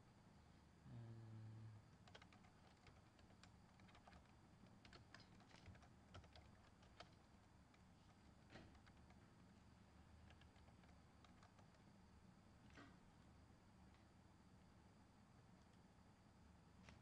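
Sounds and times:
faint keyboard typing: 0:01.9 - 0:13.1.

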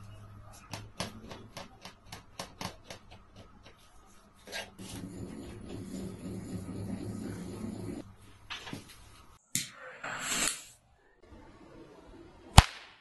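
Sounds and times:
low rubbing noise: 0:03.9 - 0:08.4.

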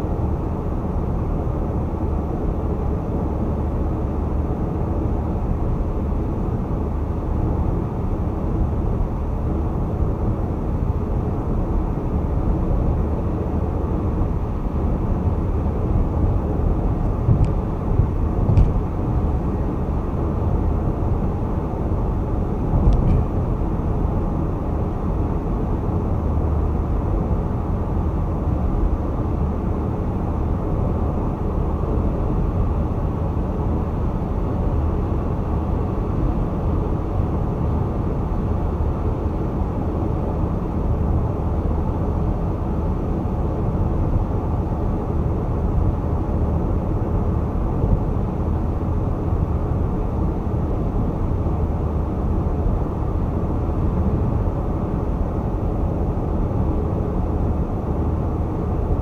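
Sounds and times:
tyre and road noise: 0:17.0 - 0:19.2.

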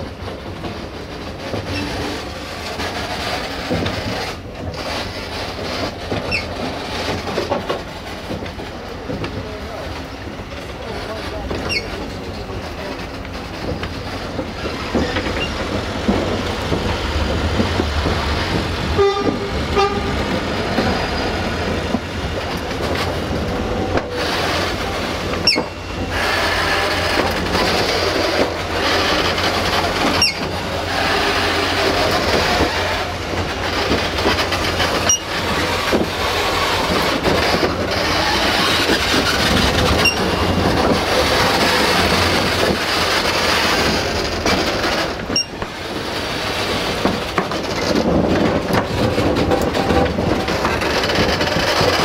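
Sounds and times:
locomotives rumbling hiss: 0:00.0 - 0:52.0
train horn toots: 0:19.0 - 0:20.2.

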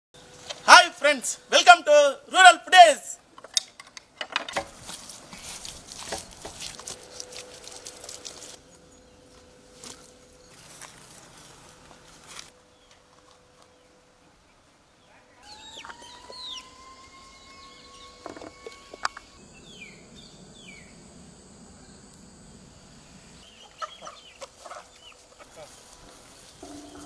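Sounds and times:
chickens clucking and calling: 0:15.4 - 0:19.3, 0:23.5 - 0:25.6.

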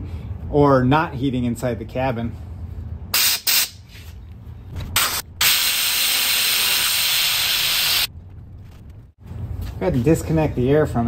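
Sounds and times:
compressed air hissing: 0:05.0 - 0:08.1.

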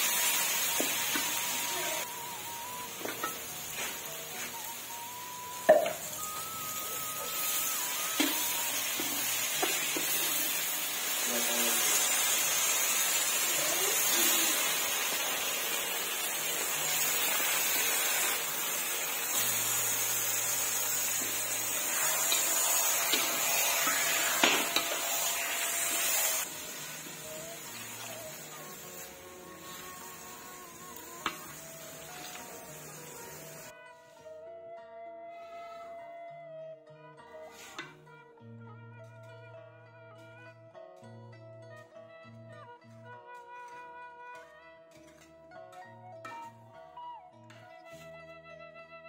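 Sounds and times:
meat sizzling in a wok: 0:00.0 - 0:33.7
metal spoon scraping a pan: 0:20.8 - 0:26.5.

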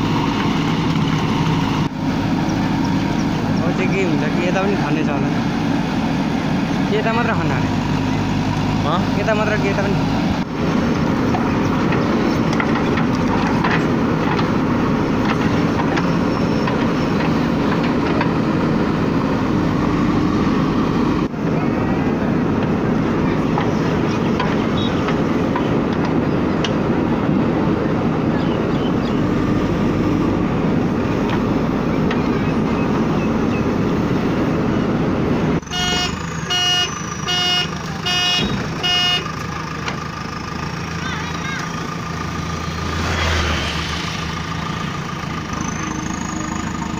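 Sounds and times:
diesel engine running under load: 0:00.0 - 0:46.9
horn beeps: 0:35.6 - 0:39.4.

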